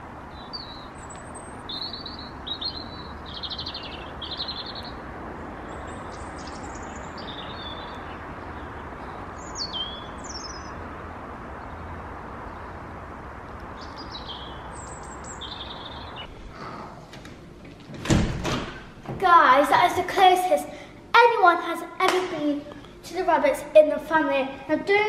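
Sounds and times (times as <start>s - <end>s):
birds chirping: 0.0s - 16.8s
outdoor background hiss: 0.0s - 25.0s.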